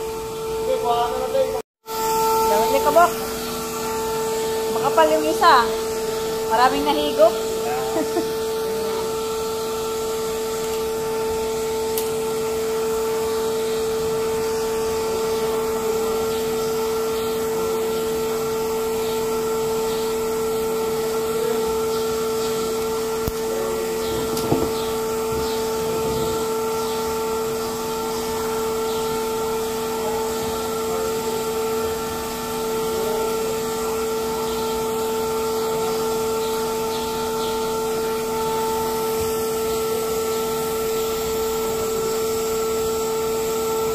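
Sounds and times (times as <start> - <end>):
vacuum cleaner whining: 0.0 - 43.9
knock: 24.4 - 24.8.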